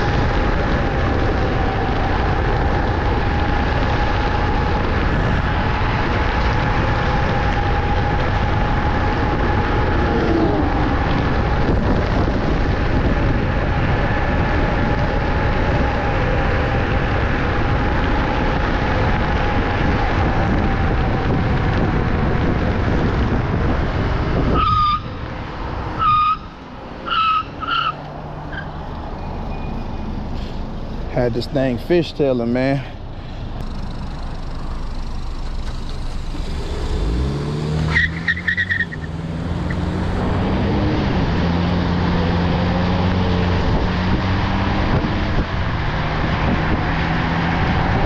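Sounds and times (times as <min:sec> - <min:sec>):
wind rushing over microphone: 0:00.0 - 0:48.0
high squeal: 0:26.0 - 0:30.6.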